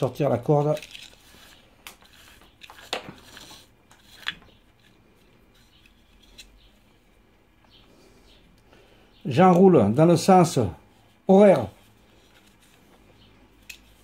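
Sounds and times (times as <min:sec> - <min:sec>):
faint handling rustle: 0:10.2 - 0:14.0.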